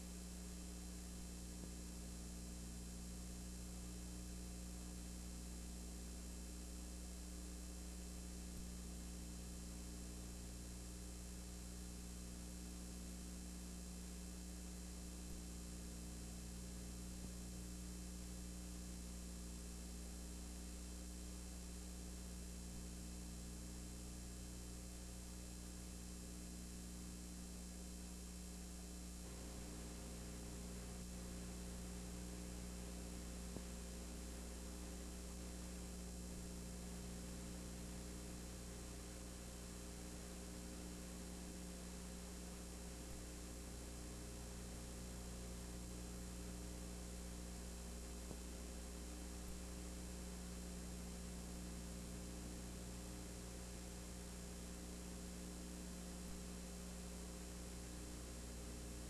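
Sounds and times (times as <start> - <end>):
electrical mains hum: 0.0 - 59.0
tape hiss: 27.3 - 59.0.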